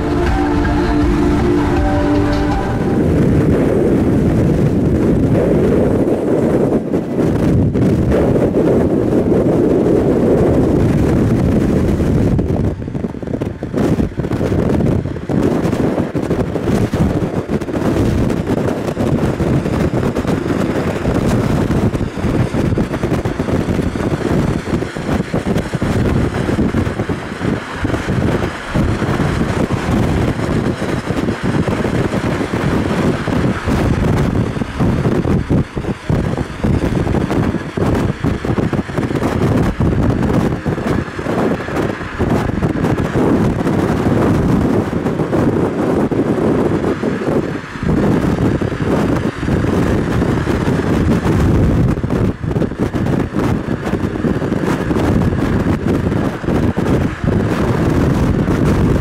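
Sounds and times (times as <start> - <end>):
car road noise: 0.0 - 59.0
wind buffeting microphone: 0.0 - 59.0.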